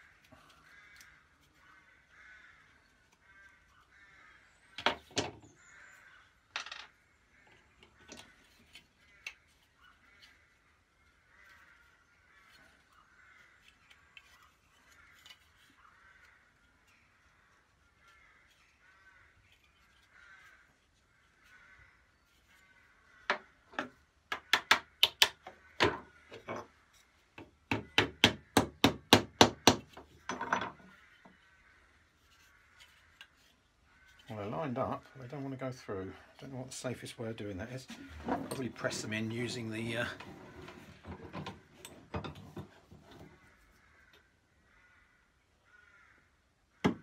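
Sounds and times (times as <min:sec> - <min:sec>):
metal and wood taps and clicks: 0:04.8 - 0:05.4, 0:23.3 - 0:26.7, 0:27.4 - 0:30.9, 0:41.0 - 0:43.2.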